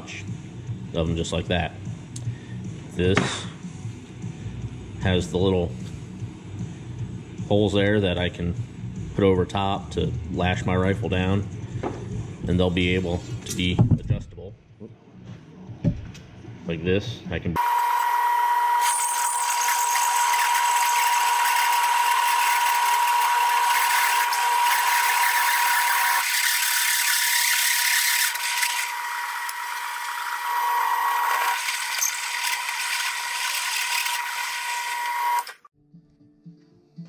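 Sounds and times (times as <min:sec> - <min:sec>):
drill press cutting metal: 0:17.6 - 0:35.7.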